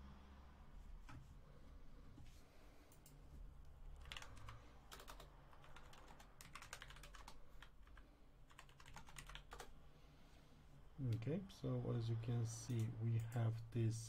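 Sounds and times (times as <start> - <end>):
low background hum: 0.0 - 14.0
computer keys clicking: 4.0 - 9.7.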